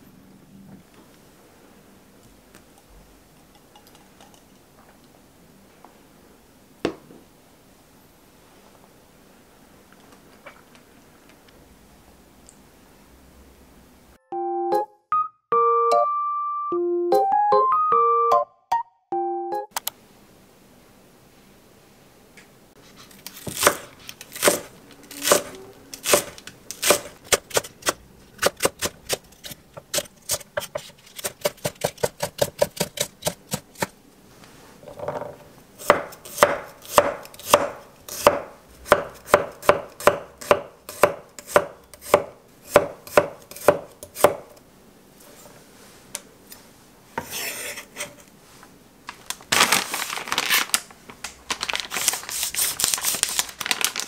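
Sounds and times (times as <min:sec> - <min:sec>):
knife chopping on wooden board: 0:23.4 - 0:29.2, 0:29.8 - 0:33.9, 0:35.8 - 0:44.6
plastic packaging crinkling: 0:49.0 - 0:54.0.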